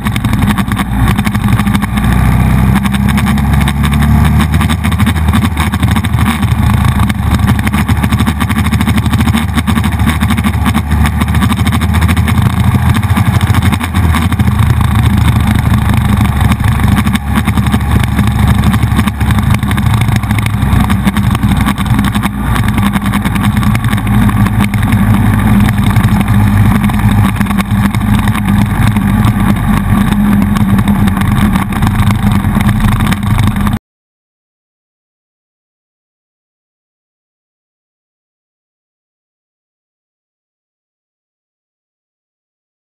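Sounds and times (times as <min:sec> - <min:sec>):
motorcycle engine running: 0:00.0 - 0:33.8
wind noise on microphone: 0:00.0 - 0:33.8.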